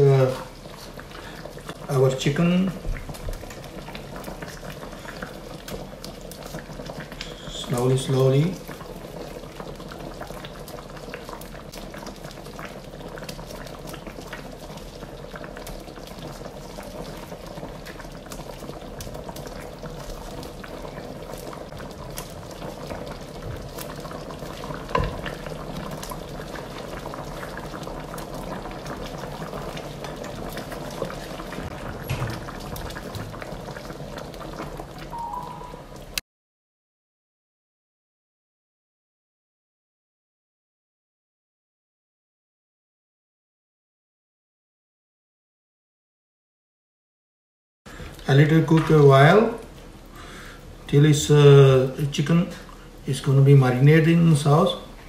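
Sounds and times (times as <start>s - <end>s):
thick sauce bubbling in wok: 0.1s - 35.1s, 47.9s - 50.9s.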